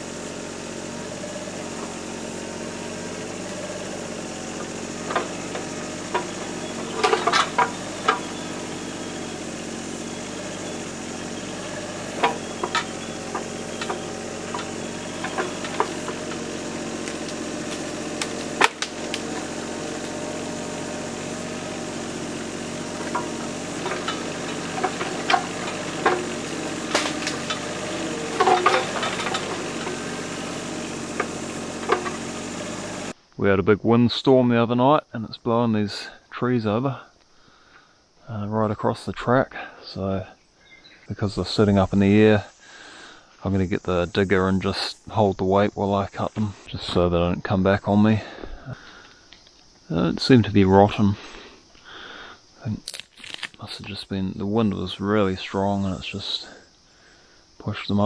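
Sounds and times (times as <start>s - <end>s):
excavator diesel engine running: 0.0s - 33.2s
sharp clicks and clanks: 4.6s - 9.2s, 10.5s - 33.1s.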